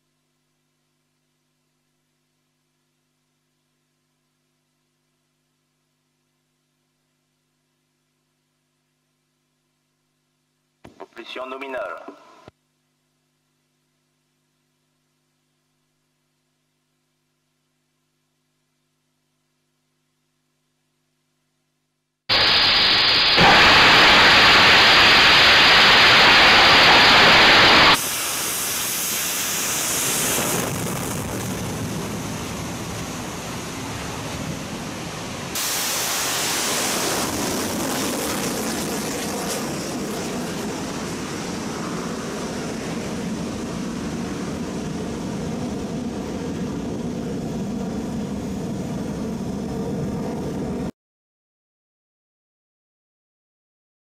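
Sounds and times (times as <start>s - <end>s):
rocket engine exhaust roar: 22.3s - 50.9s.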